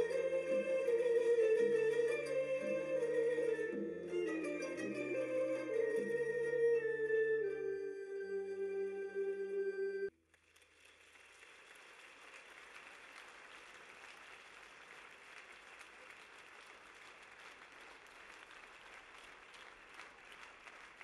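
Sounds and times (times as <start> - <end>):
faint audience applause: 10.2 - 21.0.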